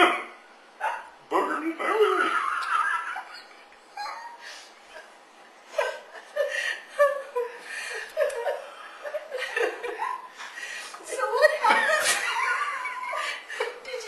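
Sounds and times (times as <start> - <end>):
woman and man laughing: 2.0 - 5.1, 5.7 - 10.4, 11.2 - 13.9.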